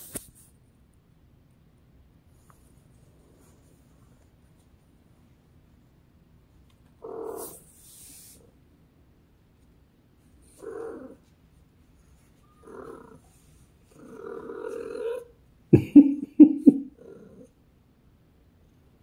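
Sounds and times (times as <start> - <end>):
high rustle: 0.0 - 0.6, 7.3 - 8.6
cat making purr-like calls: 7.0 - 8.4, 10.5 - 11.3, 12.4 - 15.4, 16.0 - 17.5.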